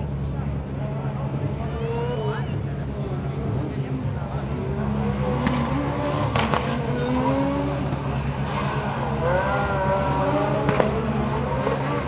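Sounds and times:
rally car engine revving: 0:00.7 - 0:12.0.

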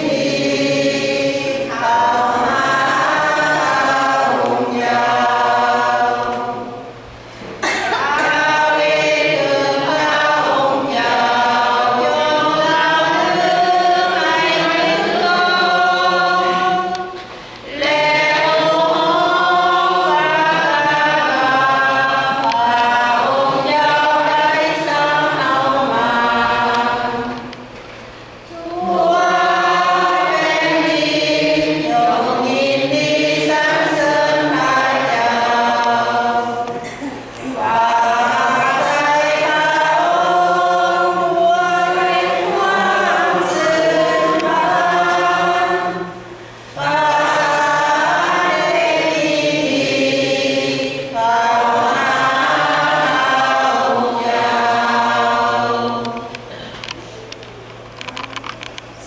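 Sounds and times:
choir singing a hymn: 0:00.0 - 0:59.0.

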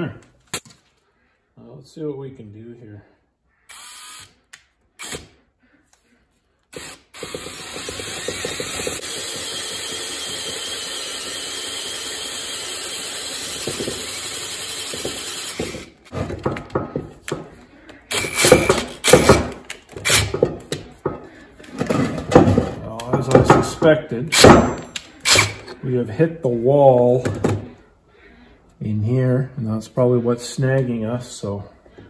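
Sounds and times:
drill clicks: 0:06.7 - 0:16.1, 0:24.4 - 0:25.8
electric drill boring into steel: 0:06.7 - 0:16.1, 0:25.2 - 0:25.7.

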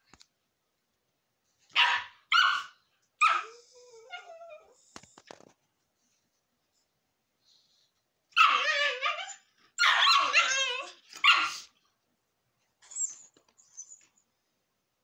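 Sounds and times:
small dog barking in play: 0:01.7 - 0:03.6, 0:08.3 - 0:11.7.

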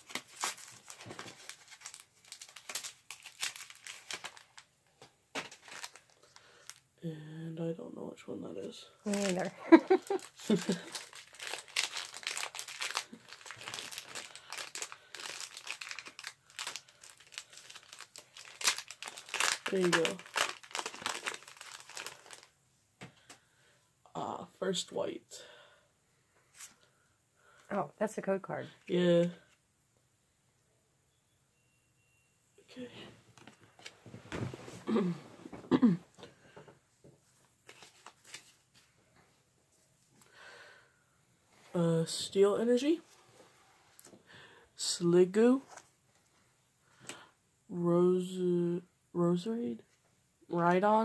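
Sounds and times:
foil wrapper crinkling: 0:00.0 - 0:04.7, 0:05.4 - 0:06.8, 0:09.1 - 0:22.5, 0:37.6 - 0:38.8
cards being shuffled: 0:09.1 - 0:22.5, 0:37.6 - 0:38.9.

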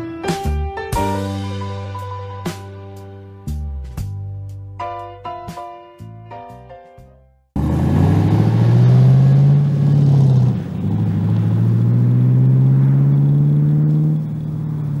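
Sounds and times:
car engine accelerating: 0:07.6 - 0:15.0.

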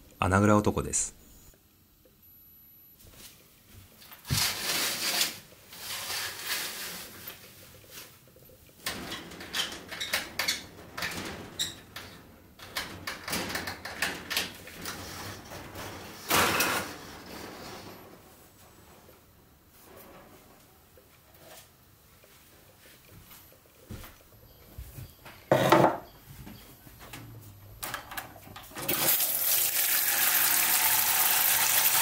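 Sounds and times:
sliding window opening: 0:04.2 - 0:07.2
curtains sliding along rail: 0:04.2 - 0:08.0
clicks and rattles at window: 0:08.8 - 0:15.0.

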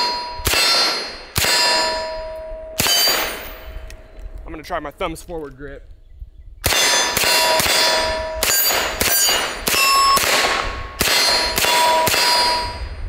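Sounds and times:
pistol shots: 0:00.0 - 0:03.7, 0:06.6 - 0:12.8
steel target ringing: 0:00.0 - 0:03.9, 0:06.7 - 0:13.0.

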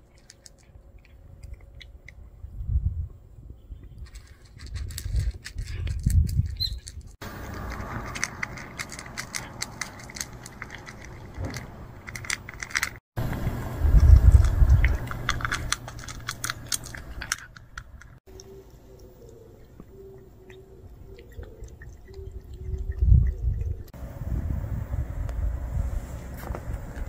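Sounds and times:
cat crunching dry kibble: 0:00.0 - 0:02.2, 0:04.0 - 0:18.2
low rumbling on microphone: 0:02.2 - 0:04.0, 0:13.2 - 0:15.4, 0:21.6 - 0:27.0.

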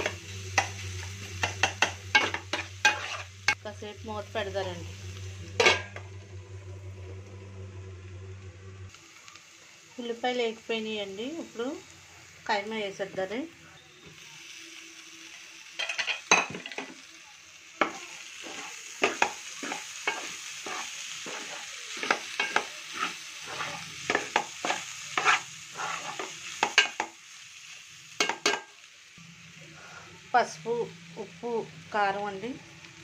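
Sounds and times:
frying sizzle in oil: 0:00.0 - 0:07.4, 0:08.9 - 0:33.0
metal spoon scraping a pot: 0:01.4 - 0:03.4, 0:18.4 - 0:26.3.

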